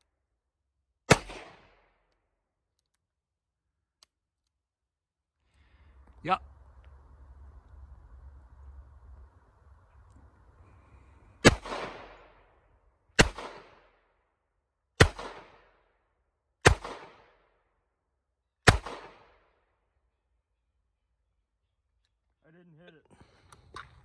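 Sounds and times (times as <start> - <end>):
gunshots with ringing echo: 1.1 - 2.0, 11.4 - 12.6, 13.2 - 14.0, 15.0 - 15.8, 16.6 - 17.5, 18.6 - 19.4.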